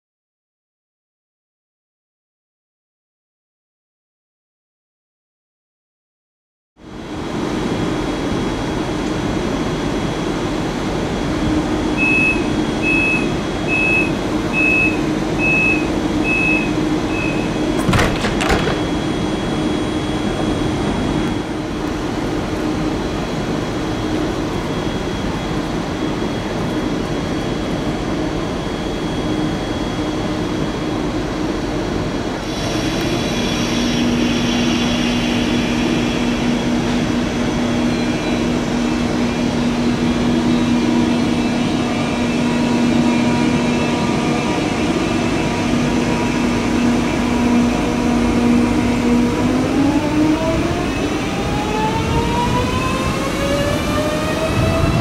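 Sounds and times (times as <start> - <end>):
electric train drive whine: 6.8 - 55.0
station noise: 10.6 - 55.0
train doors shutting: 11.8 - 19.7, 32.4 - 55.0
short high warning beeps: 12.0 - 17.6.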